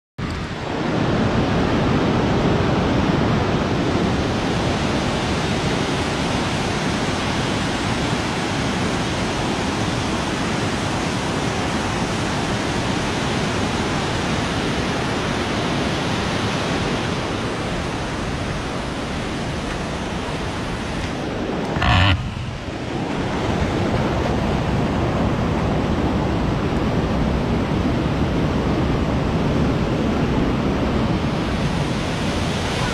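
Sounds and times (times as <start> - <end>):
river rushing through rapids: 24.2 - 32.9.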